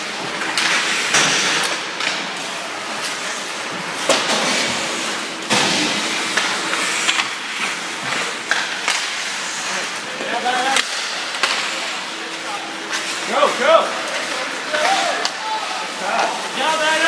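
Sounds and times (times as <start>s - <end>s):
hockey sticks and puck clacking: 0.1s - 17.0s
skate blades scraping ice: 6.2s - 17.0s.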